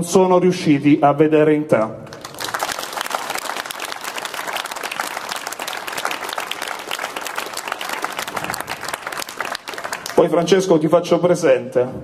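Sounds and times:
audience applauding: 2.1 - 10.4.

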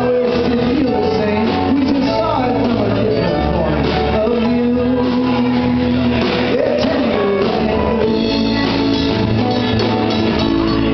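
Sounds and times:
live rock band playing: 0.0 - 10.9
man singing: 0.0 - 10.9.

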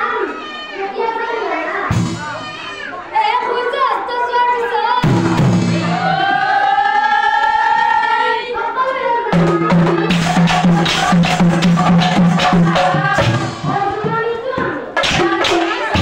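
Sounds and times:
drums beating: 1.9 - 2.8, 5.0 - 6.6, 9.3 - 16.0.

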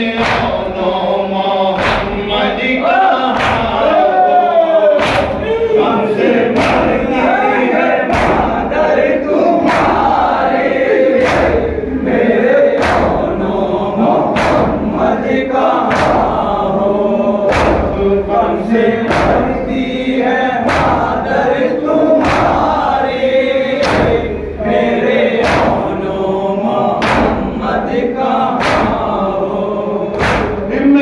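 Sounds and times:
men chanting in unison: 0.0 - 31.0
hands slapping chests: 0.2 - 0.7, 1.8 - 2.3, 3.3 - 3.9, 5.0 - 5.4, 8.1 - 8.6, 9.6 - 10.4, 11.2 - 11.7, 12.8 - 13.3, 14.3 - 14.9, 15.8 - 16.4, 17.5 - 18.0, 19.1 - 19.6, 22.2 - 22.9, 23.8 - 24.4, 25.4 - 26.0, 28.6 - 29.2, 30.2 - 30.7.

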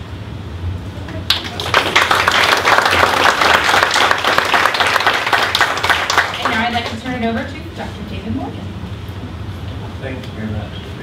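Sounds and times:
audience applauding: 1.2 - 7.2.

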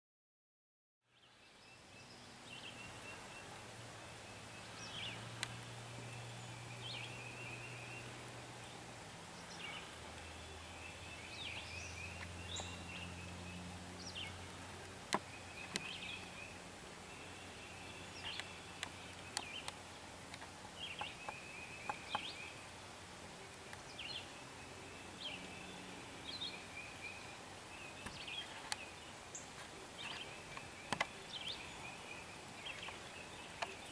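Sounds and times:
songbird with buzzy trill: 1.2 - 8.8, 9.4 - 14.6, 15.2 - 19.8, 20.8 - 22.6.

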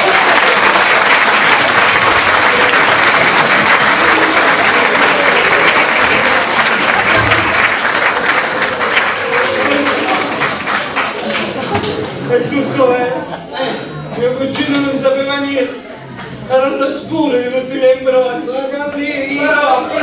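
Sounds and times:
audience applauding: 0.0 - 12.3.

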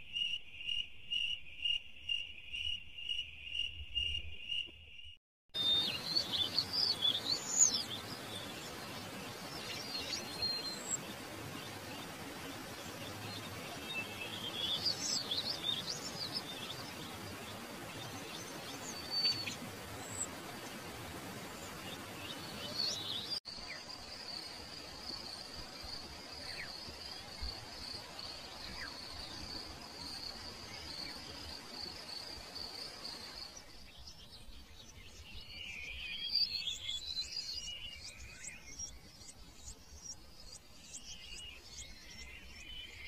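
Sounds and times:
birds chirping: 0.2 - 24.5
background hiss: 5.6 - 43.0.

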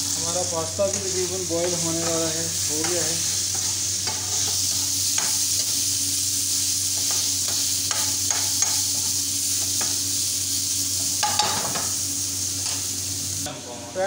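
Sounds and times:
chicken sizzling in oil: 0.0 - 14.0
spatula scraping and knocking pan: 0.8 - 5.8, 6.9 - 10.0.

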